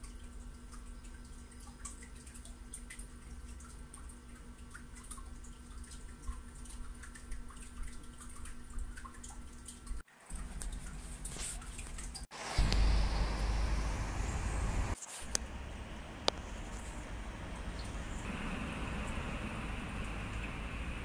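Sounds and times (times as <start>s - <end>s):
steady low hum: 12.4s - 21.0s.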